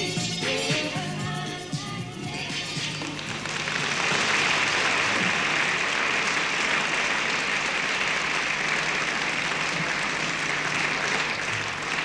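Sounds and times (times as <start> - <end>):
audience applauding: 3.1 - 12.0.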